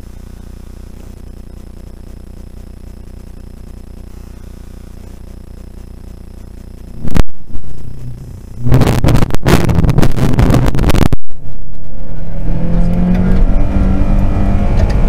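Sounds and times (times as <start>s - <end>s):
rally car engine accelerating: 7.0s - 15.0s.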